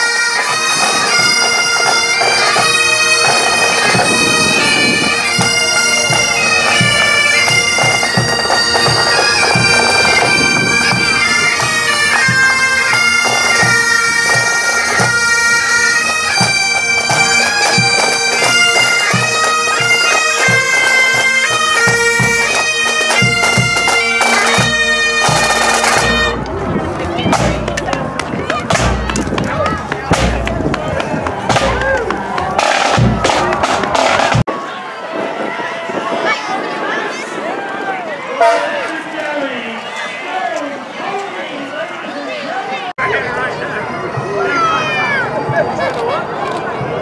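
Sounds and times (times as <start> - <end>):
bagpipes playing over drone: 0.0 - 29.4
drum beats: 0.4 - 34.5.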